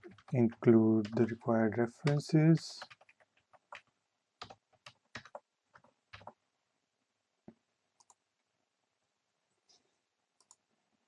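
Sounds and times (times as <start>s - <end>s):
typing on computer keyboard: 0.0s - 1.4s, 2.0s - 6.4s.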